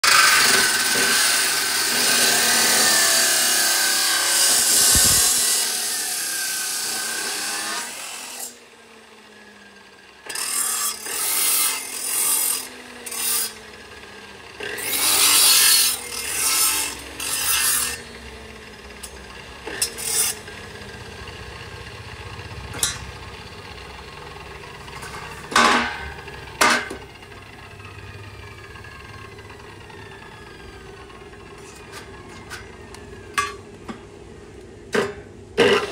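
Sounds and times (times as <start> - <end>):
cut-off saw grinding steel: 0.0 - 33.6, 35.6 - 35.9
short rasping grinds: 0.1 - 8.6
saw disc winding down hum: 0.1 - 33.9.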